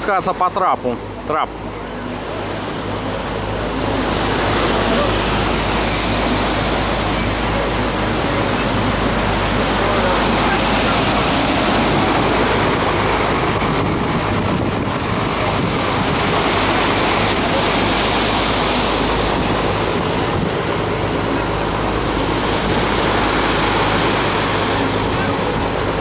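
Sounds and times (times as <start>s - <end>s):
surf breaking around pilings: 2.2s - 26.0s.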